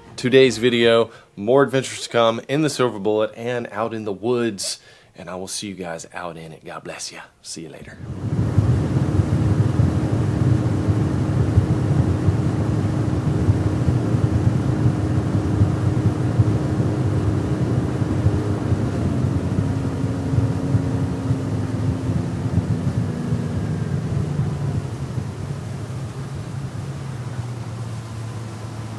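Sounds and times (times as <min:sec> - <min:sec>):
outboard motor running: 0:08.0 - 0:28.9
wind and water rushing: 0:08.0 - 0:28.9.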